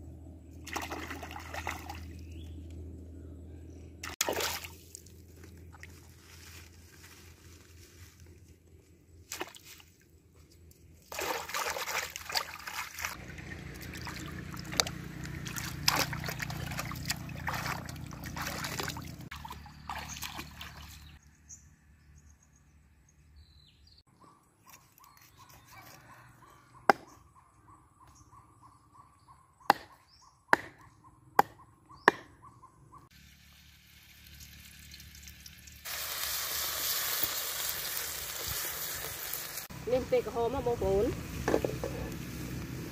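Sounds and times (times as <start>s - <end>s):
river water sloshing and splashing: 0.6s - 2.2s, 4.0s - 5.1s, 11.0s - 21.1s.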